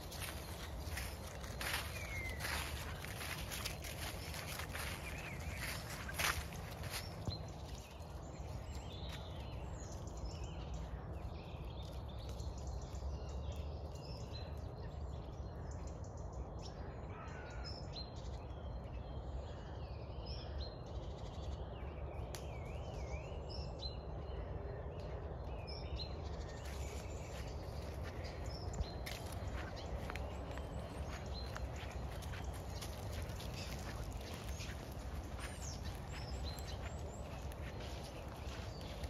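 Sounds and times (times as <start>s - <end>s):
birds singing and calling: 0.0s - 39.0s
steady low rumble: 20.3s - 39.0s.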